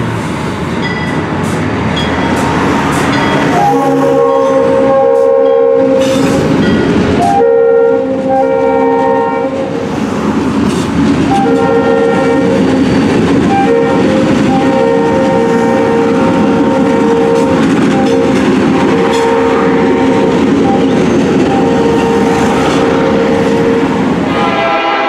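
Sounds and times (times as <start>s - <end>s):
freight locomotives rumbling past: 0.0s - 25.0s
diesel locomotive horn blasts: 3.4s - 6.4s, 7.2s - 9.8s, 11.3s - 25.0s.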